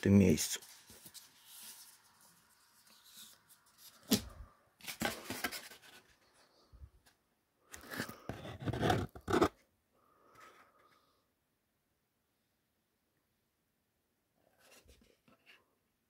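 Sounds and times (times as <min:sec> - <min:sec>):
cardboard packaging scraping and rustling: 0:00.6 - 0:06.2, 0:07.8 - 0:09.6.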